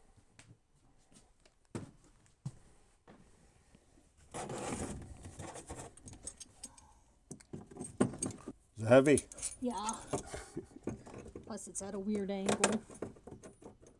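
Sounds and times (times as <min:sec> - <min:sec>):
rustling scrape: 0:04.2 - 0:06.0.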